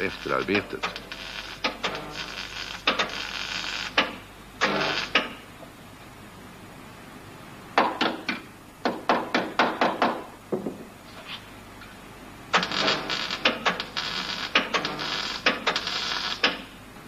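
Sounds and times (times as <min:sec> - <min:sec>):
welding arc crackling: 0:00.0 - 0:05.4, 0:12.5 - 0:16.8.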